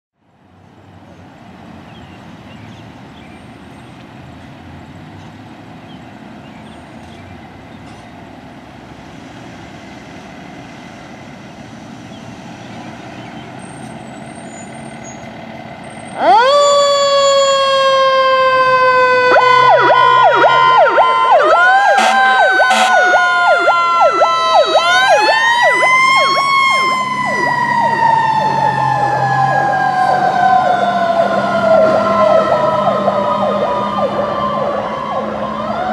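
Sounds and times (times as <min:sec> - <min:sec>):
fire engine rumbling: 0:00.3 - 0:35.9
wailing and yelping siren: 0:16.2 - 0:35.9.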